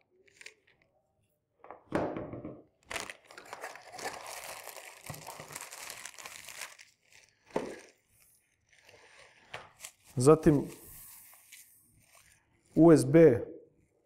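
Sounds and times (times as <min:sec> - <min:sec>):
plastic bag crinkling: 0:02.8 - 0:12.4.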